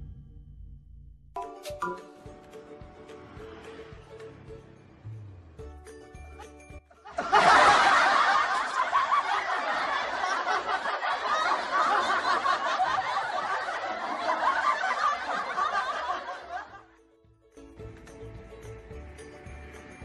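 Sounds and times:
group of people laughing: 6.4 - 17.0.

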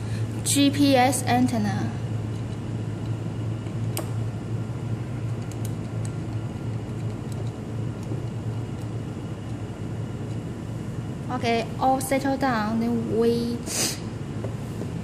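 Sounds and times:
steady low hum: 0.0 - 15.0
connector being screwed on clicking: 5.2 - 9.6.

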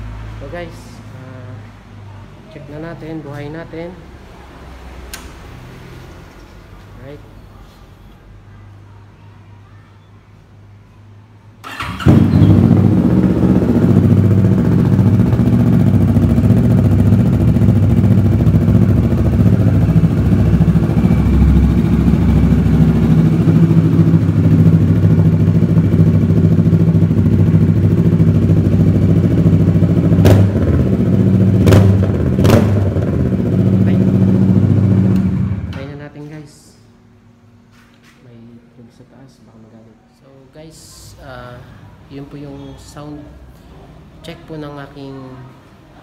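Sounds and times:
motorcycle engine idling: 11.6 - 36.0
sharp exhaust cracks: 11.6 - 36.3.

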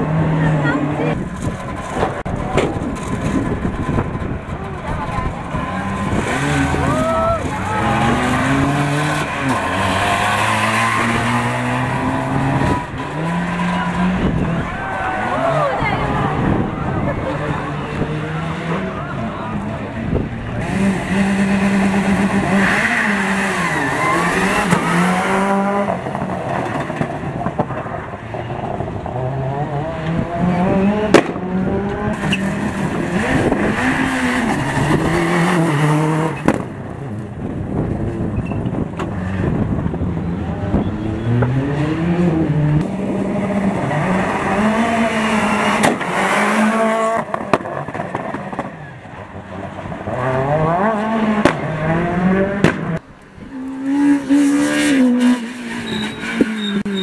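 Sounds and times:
rally car engines passing at speed: 0.0 - 57.0
sharp crack: 31.1 - 31.4, 45.8 - 46.2, 52.6 - 53.0.

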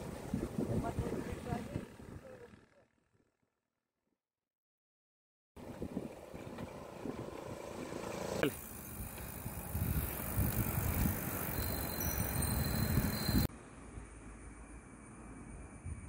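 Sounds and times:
wind rumbling on microphone: 0.0 - 2.6, 5.6 - 7.7, 8.9 - 13.5, 15.4 - 16.0
bicycle tyres rolling on pavement: 0.0 - 2.9, 5.6 - 13.5.

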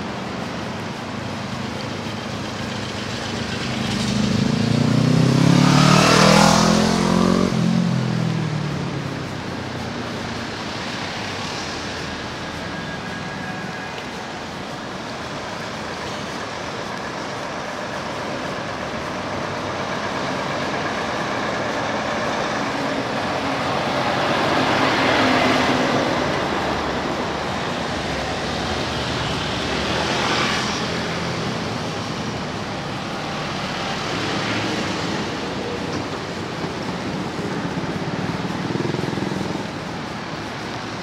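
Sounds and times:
cars driving past: 0.0 - 41.0
truck driving past: 2.0 - 10.0.

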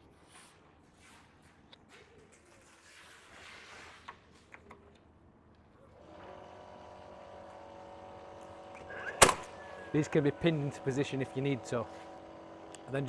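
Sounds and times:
nailer motor humming: 6.0 - 13.0.

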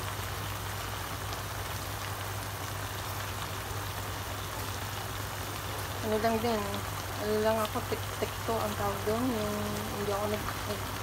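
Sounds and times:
sauce bubbling in frying pan: 0.0 - 11.0.

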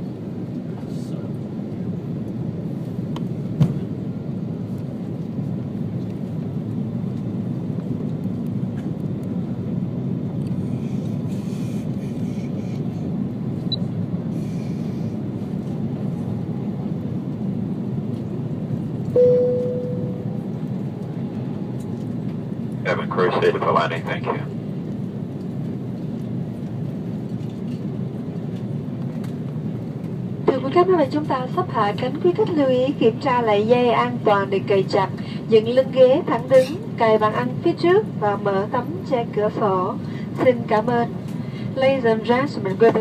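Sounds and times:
airplane cabin rumble: 0.0 - 43.0.

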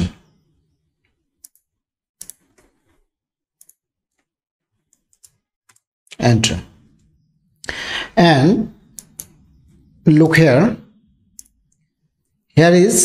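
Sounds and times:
computer mouse clicking: 1.4 - 3.0, 3.6 - 4.3, 4.9 - 5.9, 8.9 - 9.4, 11.3 - 11.9.

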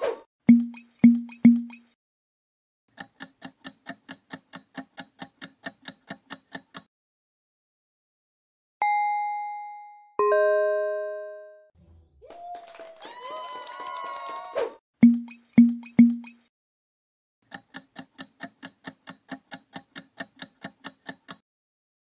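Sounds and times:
countdown clock ticking: 0.4 - 1.9, 2.9 - 6.9, 15.0 - 16.4, 17.5 - 21.4
two-note answer chime: 8.8 - 11.7.

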